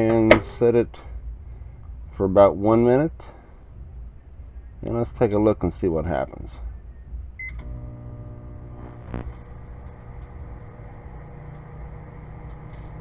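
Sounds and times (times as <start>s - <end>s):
microwave keypad beep: 7.4s - 7.6s
microwave oven humming: 7.4s - 13.0s.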